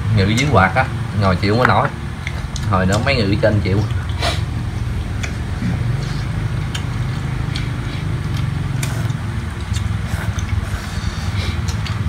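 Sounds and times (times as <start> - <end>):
electric fan humming: 0.0 - 12.0
chopsticks and spoons clicking on bowls: 6.0 - 10.6.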